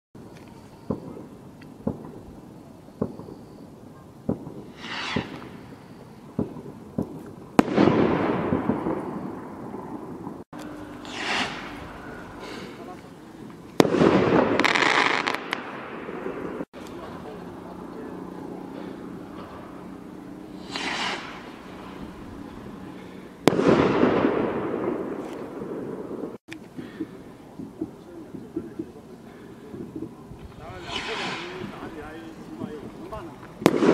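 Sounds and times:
firework crackling: 0.2s - 33.9s
firework bangs: 0.8s - 17.4s, 20.5s - 33.9s
echoing rumble: 4.3s - 33.9s
rocket whooshing up: 4.4s - 10.4s, 11.0s - 13.0s, 20.5s - 26.4s, 30.4s - 32.8s.

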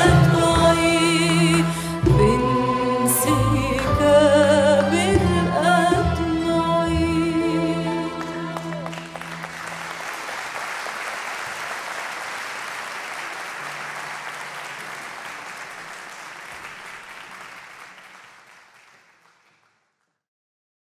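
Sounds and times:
audience applauding: 8.2s - 20.1s.

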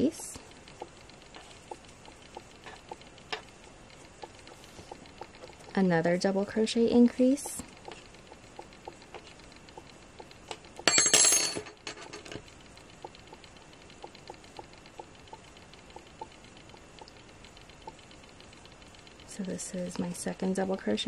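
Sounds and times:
crochet hook ticking on yarn: 0.0s - 10.9s, 12.5s - 21.0s.

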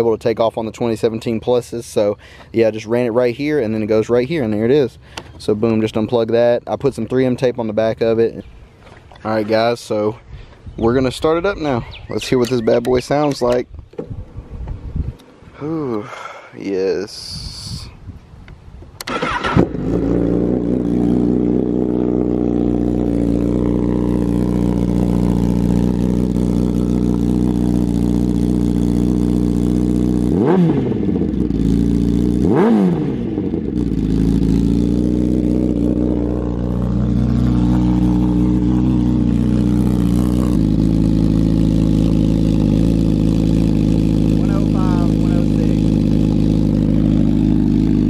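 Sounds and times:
engine throttle blips: 19.0s - 48.0s
motorcycle engine idling: 19.7s - 48.0s.

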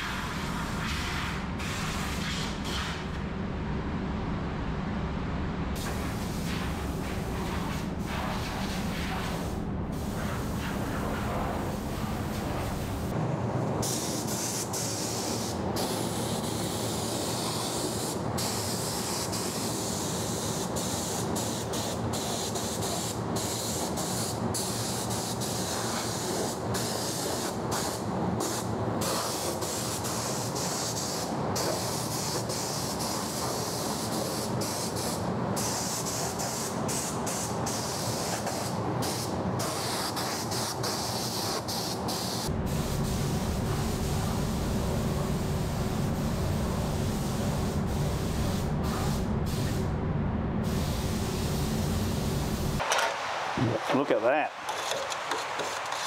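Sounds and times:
paint spray gun hissing: 13.8s - 49.8s, 50.7s - 52.9s.

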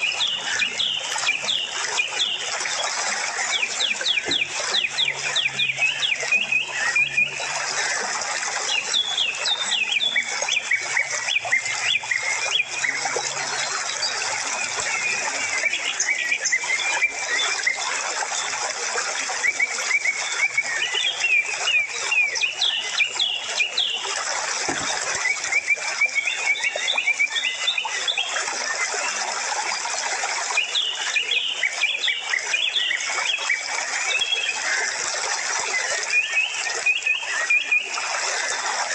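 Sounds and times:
small birds chirping: 0.0s - 2.6s, 8.8s - 14.2s.

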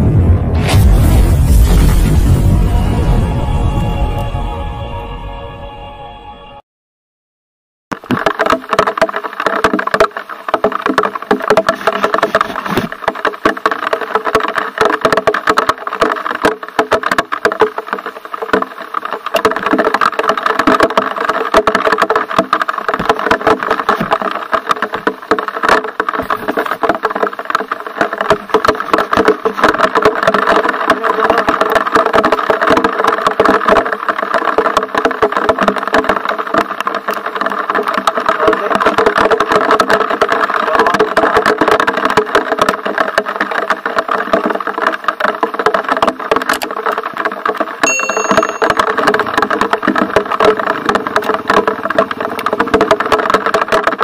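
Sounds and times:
bike rattling over bumps: 8.0s - 54.0s
short bell-like chime: 47.8s - 48.9s.

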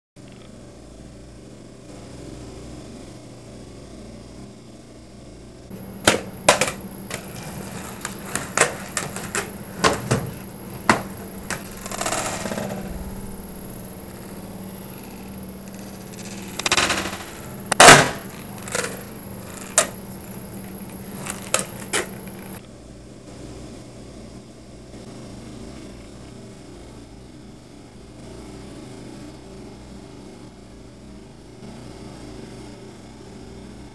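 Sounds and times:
skateboard rolling rumble: 5.7s - 22.6s
skateboard clacking on hard floor: 5.8s - 13.0s, 15.7s - 22.6s.

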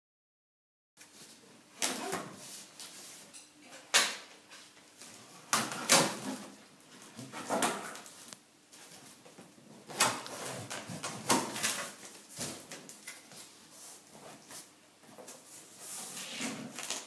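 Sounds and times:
packing tape tearing: 16.3s - 17.0s.

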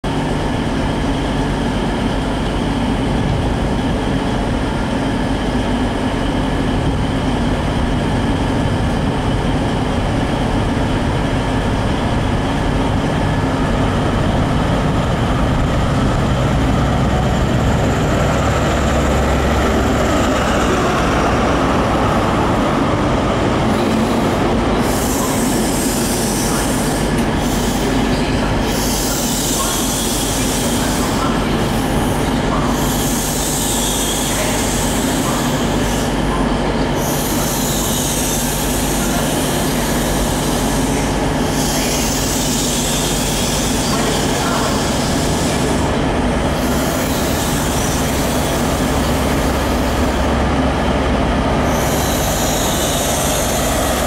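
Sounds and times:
diesel train engine drone: 0.0s - 54.0s
hiss of train wheels and brakes: 23.7s - 50.3s, 51.6s - 54.0s.

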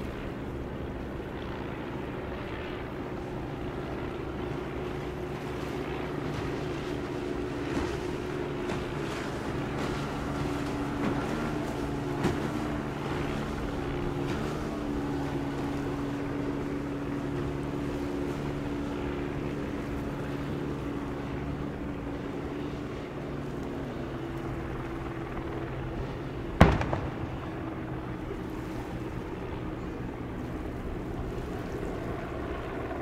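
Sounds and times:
engine drone: 0.0s - 33.0s
gun firing boom with echo: 26.6s - 28.4s.

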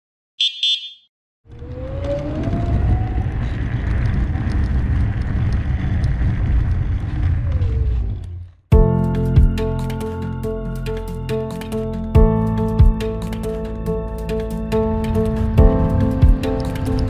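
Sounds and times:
short high beeps: 0.4s - 1.1s
electric scooter motor whine: 1.5s - 8.4s
wind rumble on microphone: 1.5s - 8.5s
road noise: 1.5s - 17.0s.

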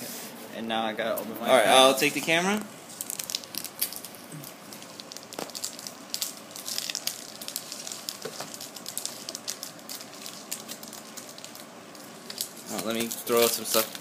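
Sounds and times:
foil pack crinkling: 2.9s - 14.0s.

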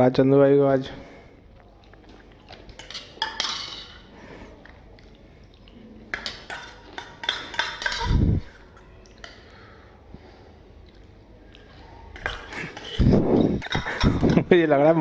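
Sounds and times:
spoon clinking on steel bowl: 2.7s - 4.0s, 6.1s - 9.4s.

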